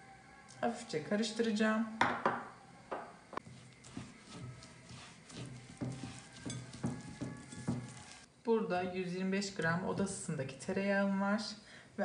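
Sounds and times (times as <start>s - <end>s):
hand squishing dough mixture: 3.4s - 8.3s.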